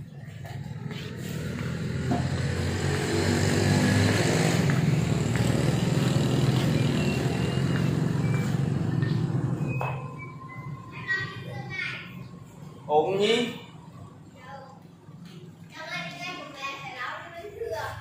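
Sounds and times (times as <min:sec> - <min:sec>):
engine running steadily: 0:00.0 - 0:10.6.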